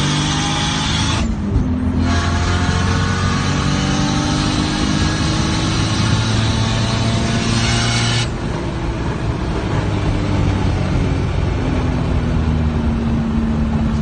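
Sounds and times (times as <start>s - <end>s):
low car engine drone: 0.0s - 14.0s
road noise: 0.0s - 14.0s.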